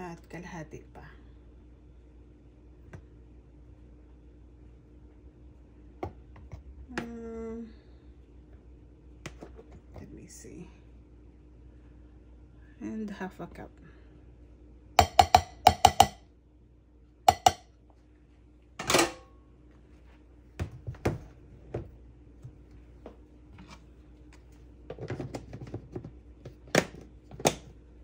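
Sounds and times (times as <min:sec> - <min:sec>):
plastic cup tapping glass bowl: 0:15.0 - 0:16.2, 0:17.3 - 0:17.6.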